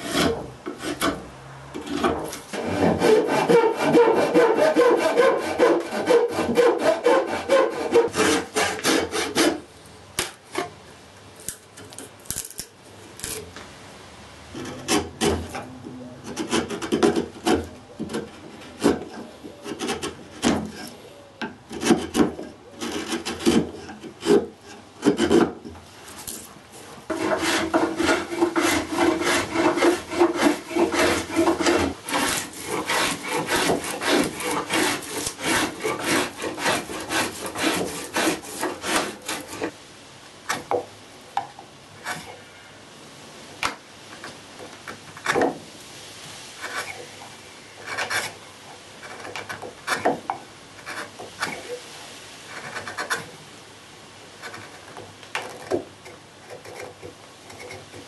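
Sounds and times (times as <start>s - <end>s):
spokeshave shaving wood: 0.0s - 1.2s, 1.8s - 9.6s, 21.7s - 26.2s, 27.1s - 39.8s, 47.8s - 48.4s, 49.0s - 51.8s, 52.5s - 53.3s, 54.4s - 58.0s
saw and chisel scraping wood: 0.0s - 9.7s, 14.5s - 21.0s, 21.7s - 39.8s, 42.0s - 42.4s, 46.6s - 48.4s, 49.0s - 51.8s, 52.5s - 53.3s, 54.4s - 58.0s.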